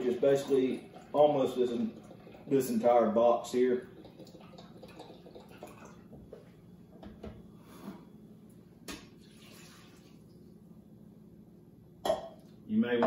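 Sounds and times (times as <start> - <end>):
liquid trickling into a cup: 0.0 - 6.5, 9.1 - 10.6.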